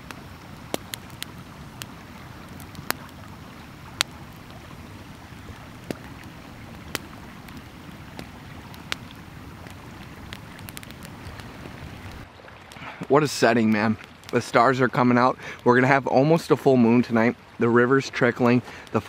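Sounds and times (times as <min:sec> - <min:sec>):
sharp fire pops: 0:00.0 - 0:14.6
campfire crackling: 0:00.0 - 0:19.0
trickling river: 0:00.0 - 0:19.0.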